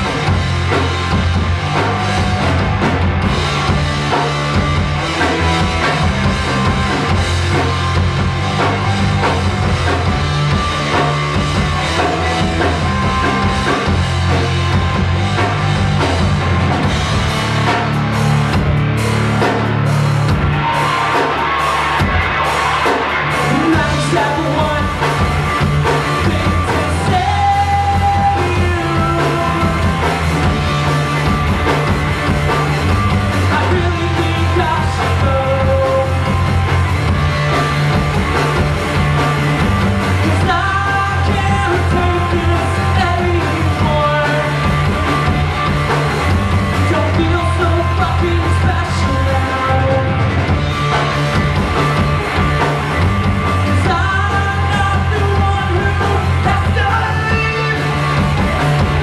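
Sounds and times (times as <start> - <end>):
bass line: 0.0 - 59.0
drum kit: 0.0 - 59.0
electric guitars: 0.0 - 59.0
man singing: 23.4 - 25.3, 25.9 - 30.2, 33.4 - 36.5, 40.1 - 44.9, 46.8 - 50.3, 53.6 - 58.2.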